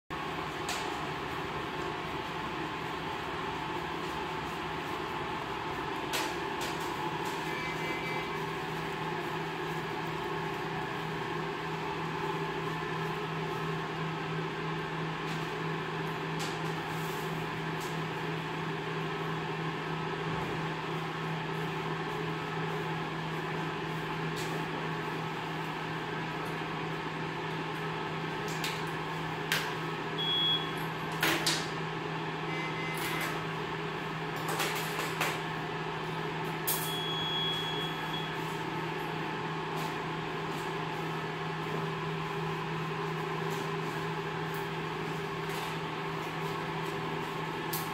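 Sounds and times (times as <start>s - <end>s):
steady machine hum: 0.1s - 47.9s
brief high beeps: 36.8s - 38.4s.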